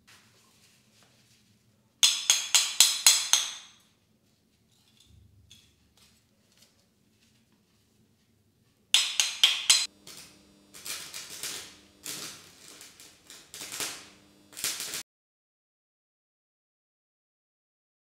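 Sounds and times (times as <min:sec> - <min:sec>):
arc welder crackling: 0:09.0 - 0:15.0.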